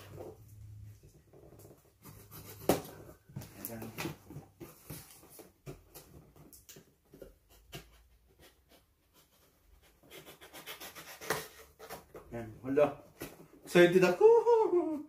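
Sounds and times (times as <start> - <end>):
tape being scraped open: 10.0 - 12.0.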